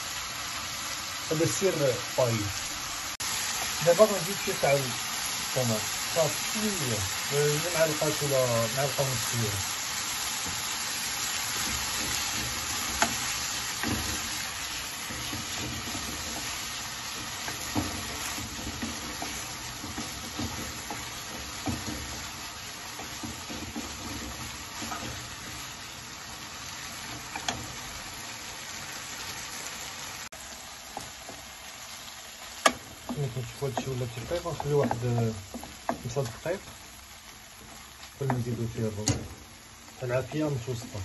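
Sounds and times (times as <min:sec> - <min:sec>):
food sizzling in a frying pan: 0:00.0 - 0:41.0
wooden spatula stirring: 0:06.3 - 0:41.0
spatula knocking against pan: 0:11.5 - 0:25.6, 0:32.6 - 0:36.2.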